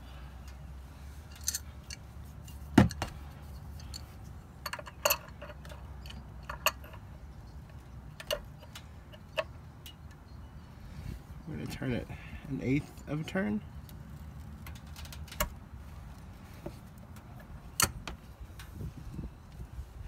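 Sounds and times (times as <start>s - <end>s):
sharp clicks and small knocks: 3.8s - 10.3s, 13.8s - 15.6s.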